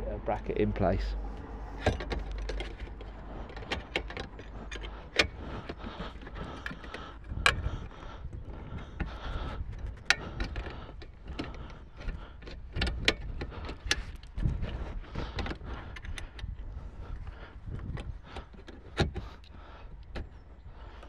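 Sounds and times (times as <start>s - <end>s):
wrench metallic clicks and clinks: 1.8s - 7.6s.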